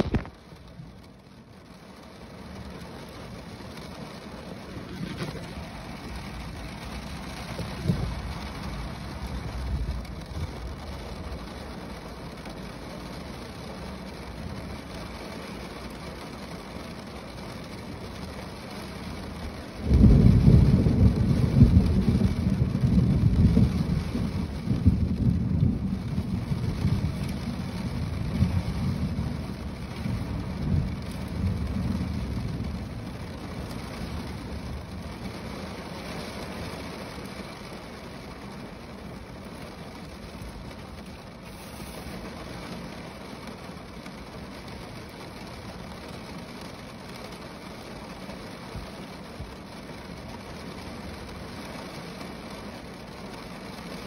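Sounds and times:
rain falling on a car roof: 0.0 - 54.0
deep rumble of thunder: 4.8 - 11.4, 19.8 - 35.6.

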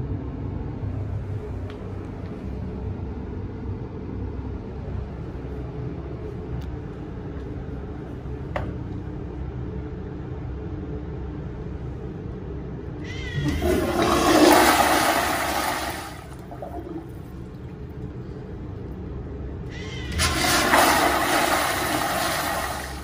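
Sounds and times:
toilet flushing: 13.2 - 19.0, 19.7 - 23.0.

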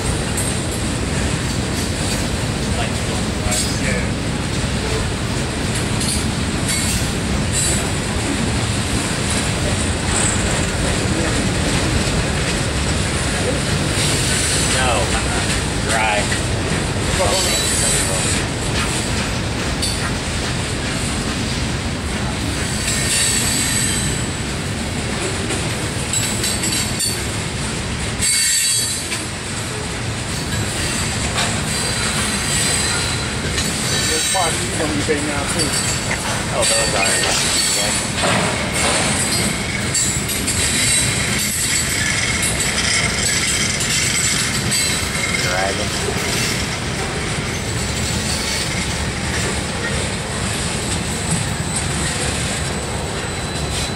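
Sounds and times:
train wheels rumbling on track: 0.0 - 53.9.

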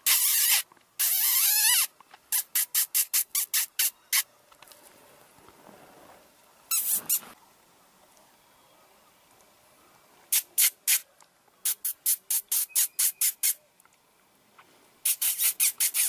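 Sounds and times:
predator call squealing: 6.7 - 7.4
short squeaks: 6.7 - 7.4.

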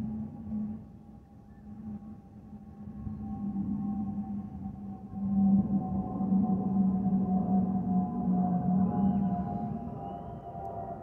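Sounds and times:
whistling hum: 7.2 - 11.0.

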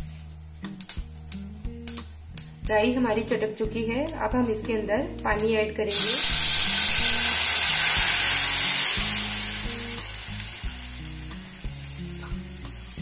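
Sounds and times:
loud sizzling hiss in hot pan: 5.9 - 13.0.

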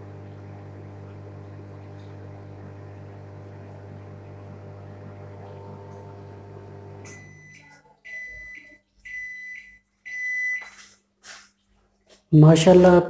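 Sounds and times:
microwave oven humming: 0.0 - 10.8
microwave high beeps: 6.6 - 10.8.

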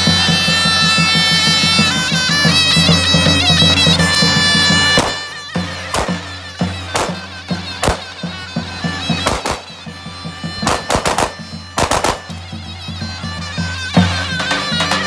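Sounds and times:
zurna shrill wavering melody: 0.0 - 15.0
pistol shots: 9.2 - 9.7, 10.6 - 12.3.

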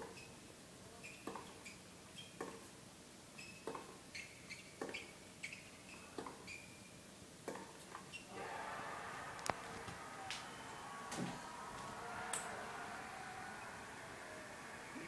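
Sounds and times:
tennis shoes squeaking on court: 3.4 - 6.8.

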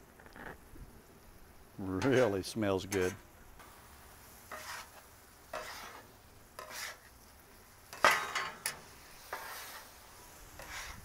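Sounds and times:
metal spatula scraping griddle: 2.0 - 3.2, 4.4 - 7.2, 7.8 - 11.0.

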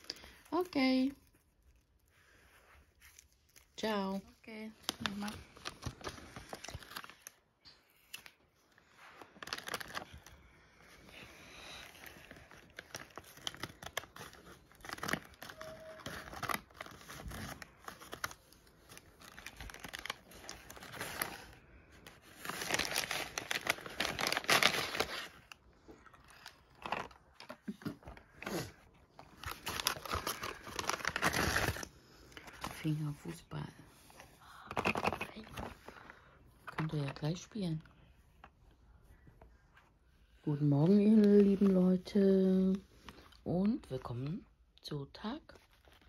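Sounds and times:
wrapping paper tearing and crumpling: 0.0 - 7.5, 8.1 - 10.4, 11.6 - 33.1.

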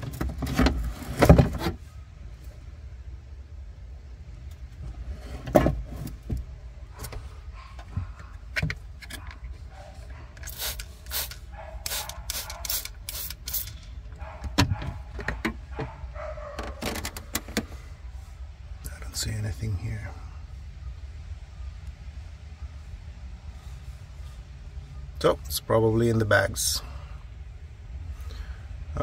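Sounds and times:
low steady hum: 0.0 - 29.0
handling clicks and knocks: 7.8 - 10.9, 12.1 - 17.7
spray bottle squirting: 10.4 - 13.8.

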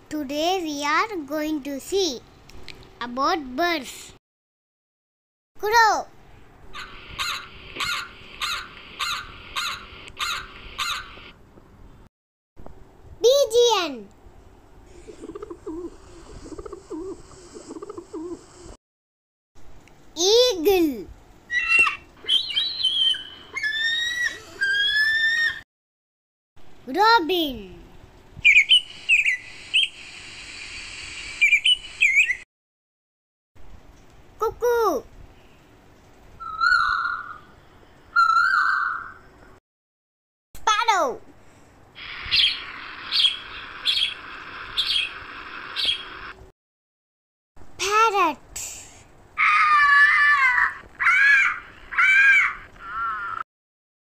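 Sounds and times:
robin singing: 21.5 - 23.8, 42.1 - 44.2, 44.8 - 45.2
background hiss: 26.8 - 32.3, 41.3 - 46.5, 48.2 - 49.4.

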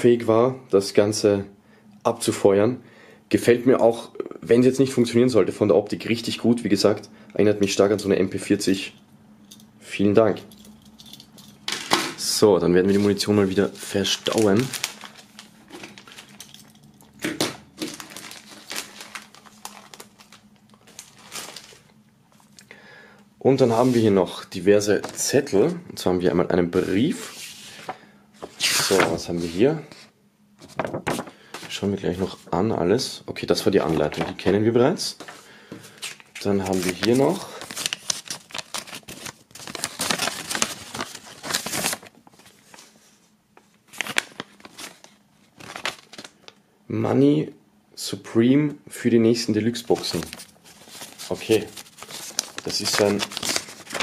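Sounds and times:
plastic bag crinkling: 12.8 - 22.6, 35.9 - 42.8, 43.9 - 46.5, 49.7 - 54.0.

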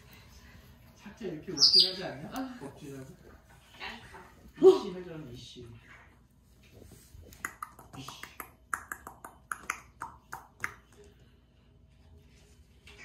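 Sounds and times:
cockatiel clicks and chirps: 7.4 - 10.8.

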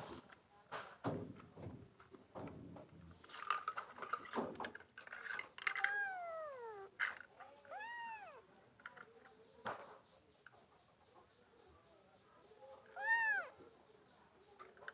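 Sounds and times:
light clicks and rustling: 0.0 - 10.6, 14.5 - 14.9
kitten meowing: 5.8 - 6.9, 7.7 - 8.4, 13.0 - 13.5.

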